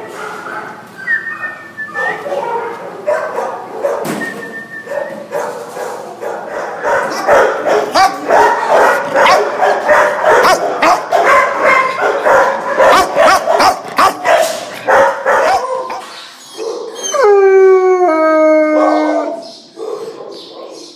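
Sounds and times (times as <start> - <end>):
many dogs barking: 0.0 - 4.2, 4.9 - 17.1, 18.7 - 20.9
dog howling: 6.7 - 19.5.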